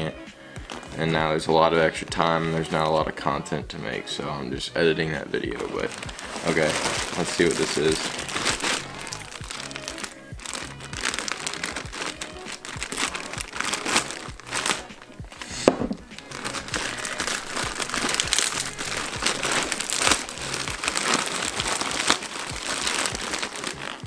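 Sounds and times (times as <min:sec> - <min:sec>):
plastic mailer bag crinkling: 0:05.6 - 0:24.0.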